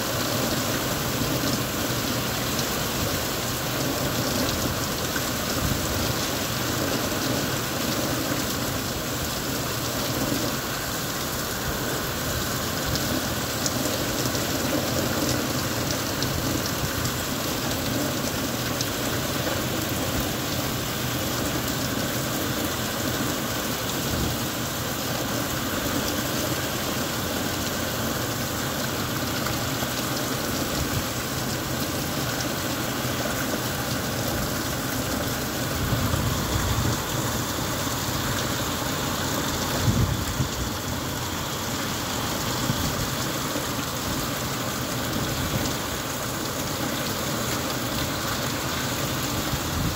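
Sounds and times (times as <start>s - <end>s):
heavy rain on pavement: 0.0s - 49.9s.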